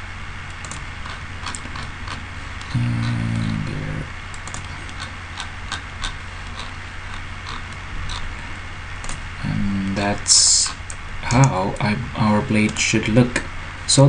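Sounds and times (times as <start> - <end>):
low electrical hum: 0.0 - 14.0
computer mouse clicking: 0.5 - 3.7, 4.3 - 8.3
person humming: 2.6 - 4.1.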